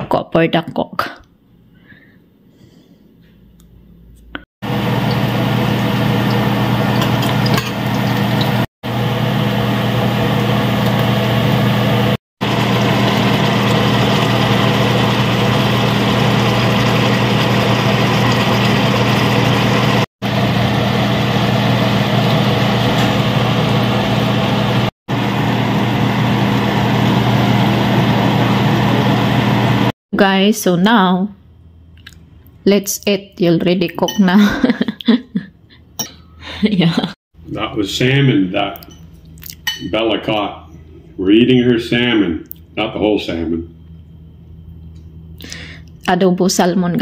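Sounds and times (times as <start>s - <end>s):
exhaust fan humming: 4.6s - 29.9s.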